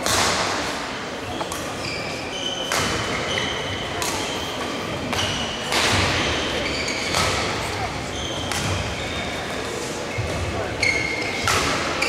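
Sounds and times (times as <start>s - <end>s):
shoes squeaking on court floor: 1.2s - 12.0s
rackets striking shuttlecock: 2.6s - 7.6s, 8.4s - 9.0s, 10.9s - 12.0s.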